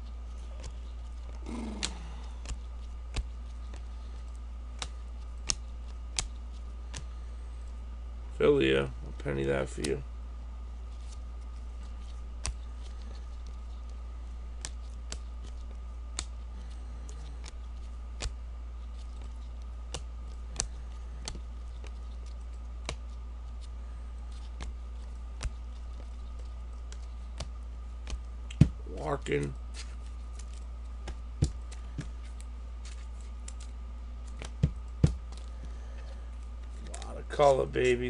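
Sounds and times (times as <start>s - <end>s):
steady low hum: 0.0s - 38.0s
trading cards clicking: 0.4s - 7.1s.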